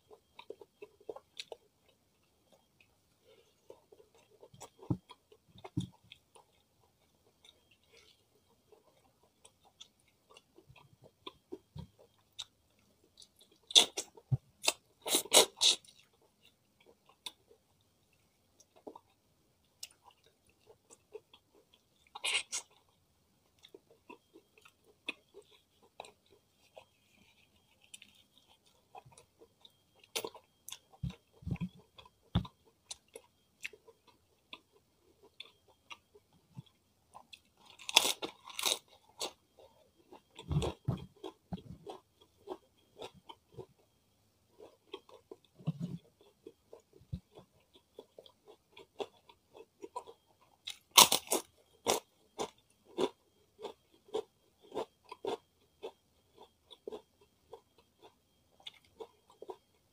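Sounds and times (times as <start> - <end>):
loud crunchy bites: 50.7 - 52.0.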